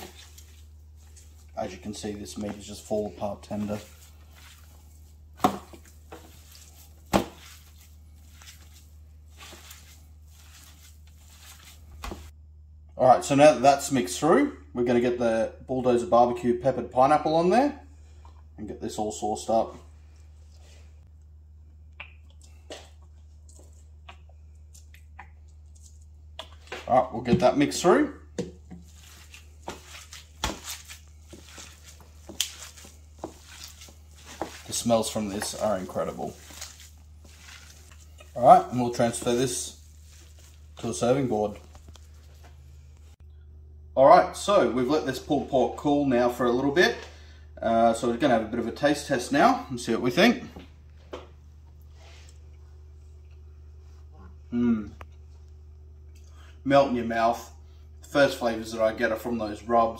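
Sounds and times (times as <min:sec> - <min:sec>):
meat squishing in foil tray: 0:00.0 - 0:12.3, 0:22.5 - 0:27.0, 0:28.7 - 0:42.6
low steady hum: 0:00.0 - 0:59.9
aluminium foil crinkling: 0:28.9 - 0:42.4.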